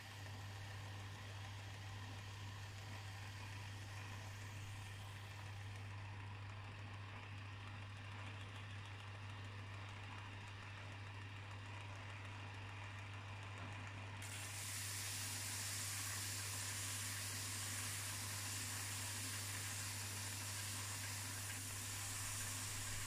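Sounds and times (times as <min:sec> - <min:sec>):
metal sanding hiss: 0:14.2 - 0:23.0.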